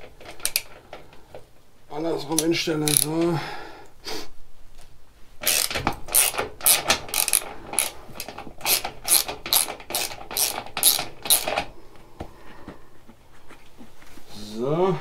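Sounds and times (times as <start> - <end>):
hand ratchet clicking: 0.0 - 1.1, 2.3 - 3.3, 5.4 - 11.7.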